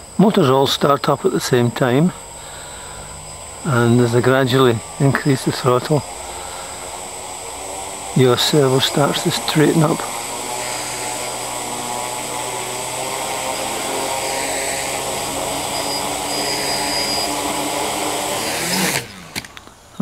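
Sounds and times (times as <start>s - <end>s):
drone propellers whirring: 0.0s - 20.0s
small clicks: 19.1s - 19.8s.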